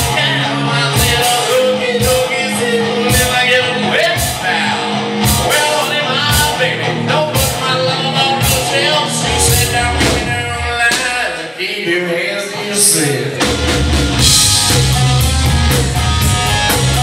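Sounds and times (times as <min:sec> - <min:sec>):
bass guitar: 0:00.0 - 0:10.9, 0:13.3 - 0:17.0
drum kit beat: 0:00.0 - 0:11.4, 0:13.4 - 0:17.0
electric guitars: 0:00.0 - 0:11.6, 0:12.4 - 0:17.0
man singing: 0:00.0 - 0:13.6.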